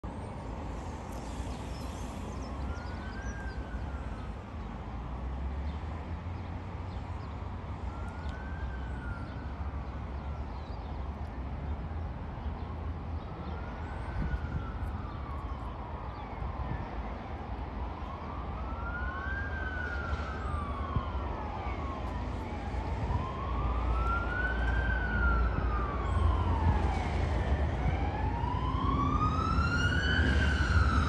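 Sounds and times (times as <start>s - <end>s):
siren wailing: 18.0s - 31.0s.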